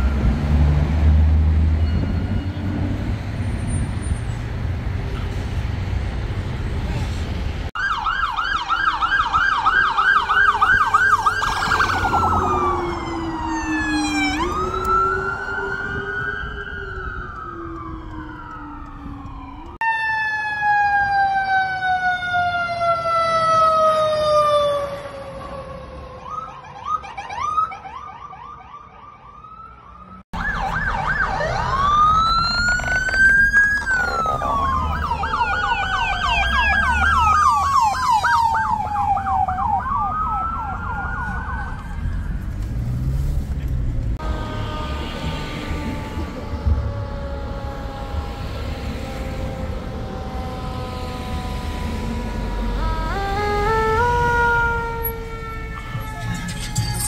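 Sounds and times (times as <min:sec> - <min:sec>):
fire truck sirens yelping and wailing: 0:07.7 - 0:42.4, 0:44.2 - 0:57.0
siren tone falling slowly: 0:30.4 - 0:42.0, 0:44.2 - 0:57.0.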